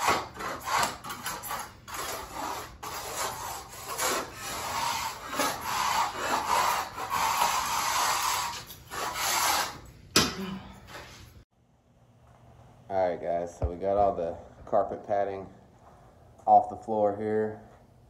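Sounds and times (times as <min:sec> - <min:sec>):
floor scraper rasping on linoleum: 0:00.0 - 0:09.9.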